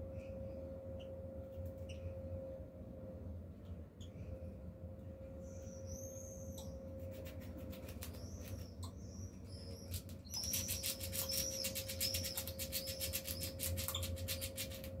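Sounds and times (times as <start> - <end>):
squirrel chirping: 5.4 - 15.0
squirrel gnawing pit: 9.5 - 15.0.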